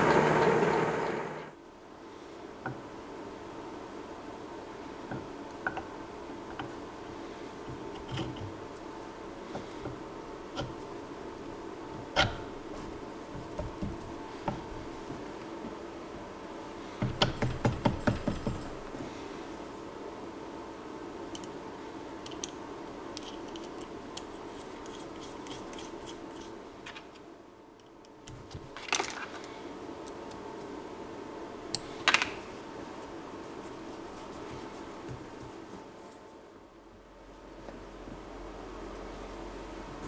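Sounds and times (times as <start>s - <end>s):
faint steady hum: 0.0s - 40.0s.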